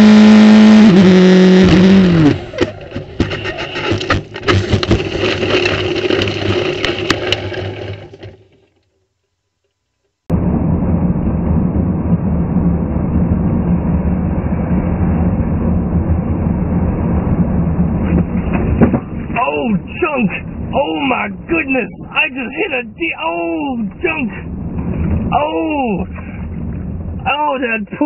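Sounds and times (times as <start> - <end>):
sharp clicks and knocks: 2.5 - 8.9
car driving low rumble: 10.3 - 28.0.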